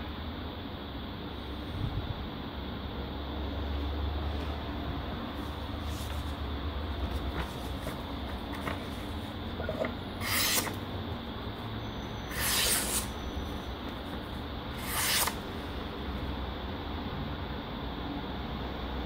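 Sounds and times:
knife slicing paper: 7.2s - 10.9s, 12.3s - 13.2s, 14.1s - 15.5s.

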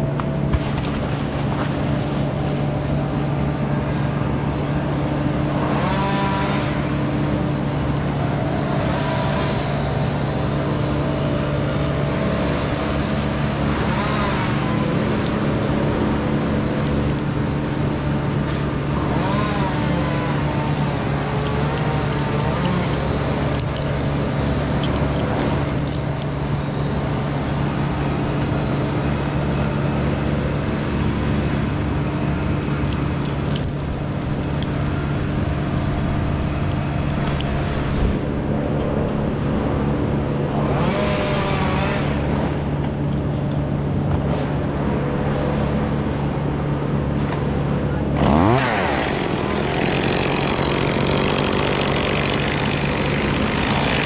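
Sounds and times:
engine running steadily: 0.0s - 54.0s.

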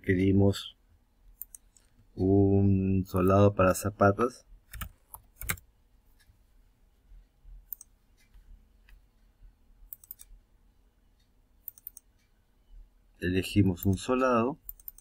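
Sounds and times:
computer mouse clicks: 1.4s - 2.1s, 4.7s - 5.7s, 7.7s - 9.0s, 9.9s - 10.4s, 11.6s - 12.3s, 13.8s - 15.0s.

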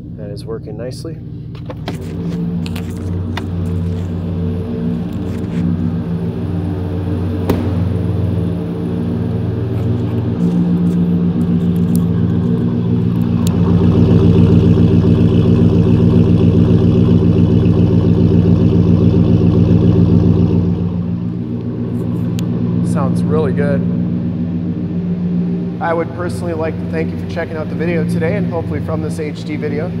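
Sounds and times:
truck engine idling: 0.0s - 30.0s
sharp knock: 7.4s - 7.9s.

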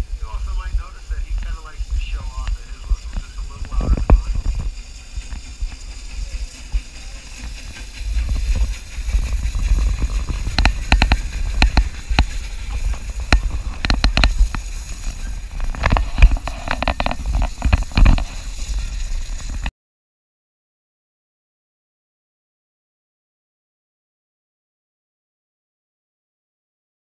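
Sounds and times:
wind rumble on microphone: 0.0s - 19.7s
train wheels clacking on track: 0.2s - 19.6s.

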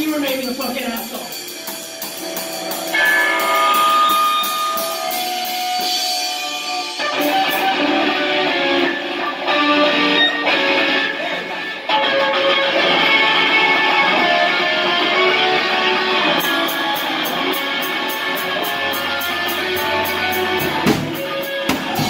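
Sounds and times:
drum strikes: 0.4s - 7.7s, 16.4s - 22.0s
electric guitar chords: 1.0s - 22.0s.

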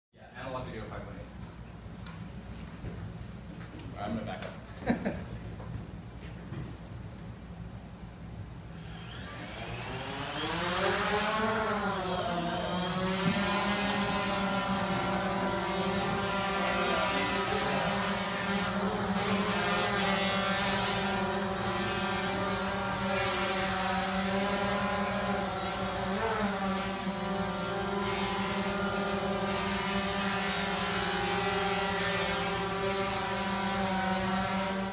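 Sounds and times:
drone propellers buzzing: 8.7s - 34.9s.

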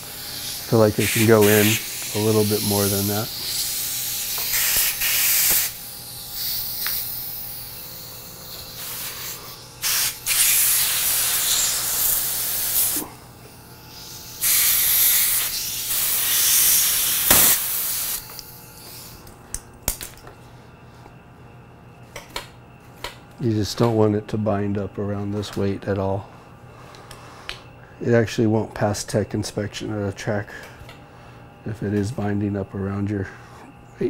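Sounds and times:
compressed air hissing: 0.0s - 19.2s.

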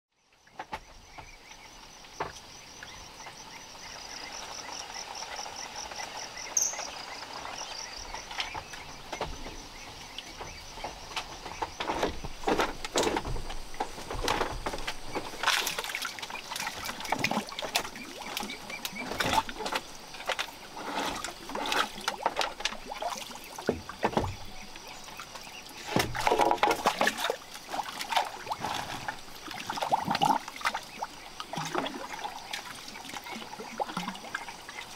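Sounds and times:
insect chirp: 0.2s - 34.9s
high pulsing insect drone: 1.6s - 22.5s
water splashing: 3.0s - 34.9s.

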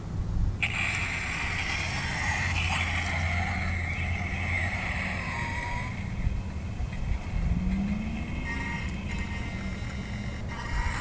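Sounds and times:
low electronic hum: 0.0s - 11.0s
electrical hiss: 0.6s - 7.4s.

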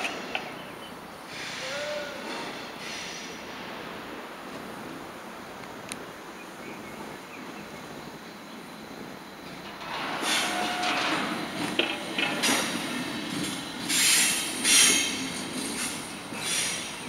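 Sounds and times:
train wheels squealing: 0.0s - 3.4s, 9.2s - 17.0s
train rolling over tracks: 0.0s - 17.0s.

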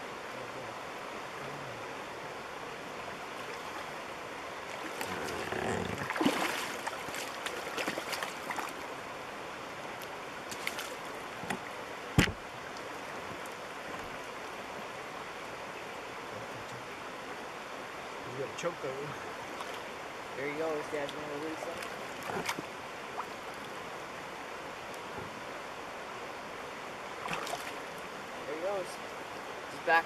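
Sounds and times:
river running over rocks: 0.0s - 30.0s
fish splashing in water: 4.8s - 8.8s, 27.2s - 27.9s
sharp knock: 12.2s - 12.4s.

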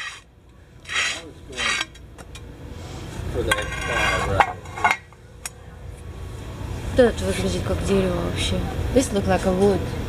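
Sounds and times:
tile scraping on concrete floor: 0.0s - 0.2s, 0.8s - 1.9s, 3.5s - 5.0s.

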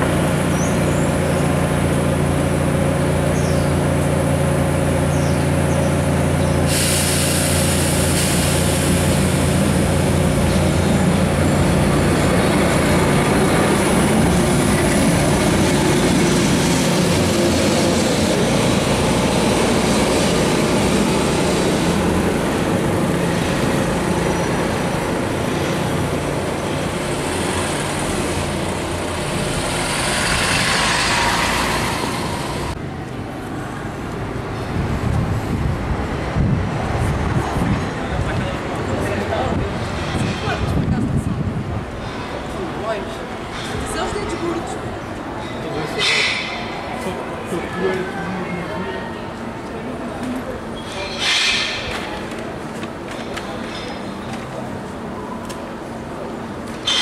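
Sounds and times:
electric tram motor hum: 0.0s - 57.0s
wheels rumbling on track: 0.0s - 57.0s
loud rushing noise: 6.6s - 33.0s.

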